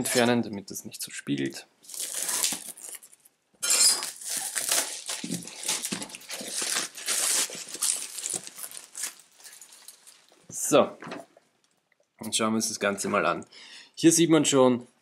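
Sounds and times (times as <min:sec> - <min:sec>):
plastic shrink wrap crinkling: 0:01.8 - 0:10.7.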